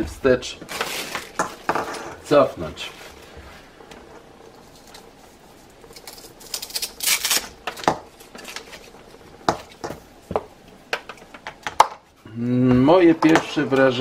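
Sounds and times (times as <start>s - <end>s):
rustling scrape: 0.7s - 7.4s.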